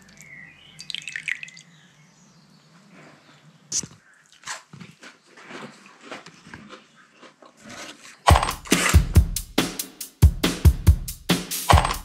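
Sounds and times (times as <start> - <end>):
drips and splashes of tea: 0.0 - 1.7.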